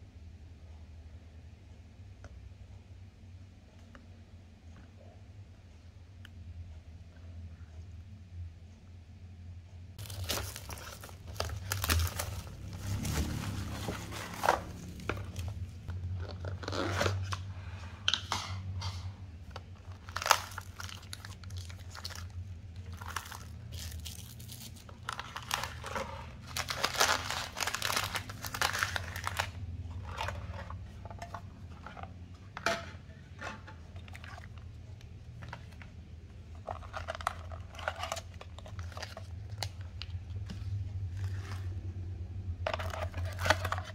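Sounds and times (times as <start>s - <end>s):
food pouches rustling: 10.0s - 17.5s, 19.5s - 32.3s, 34.0s - 41.8s, 42.6s - 43.9s
plastic wrap tearing and crinkling: 10.0s - 17.5s, 19.8s - 32.0s, 36.6s - 40.2s, 42.7s - 43.9s.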